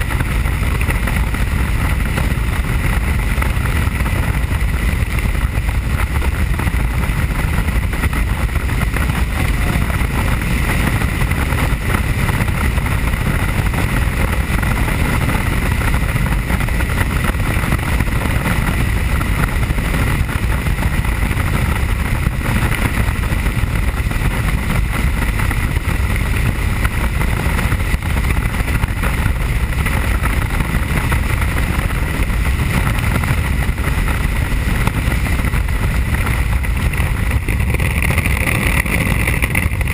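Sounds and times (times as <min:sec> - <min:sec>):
helicopter engine and rotor noise: 0:00.0 - 0:19.8
high whine: 0:00.0 - 0:39.9.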